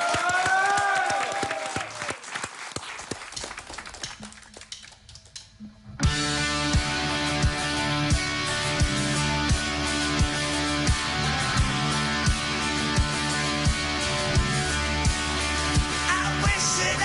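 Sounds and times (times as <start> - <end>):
audience applause: 0.0 - 5.0
live rock band playing: 6.0 - 17.0.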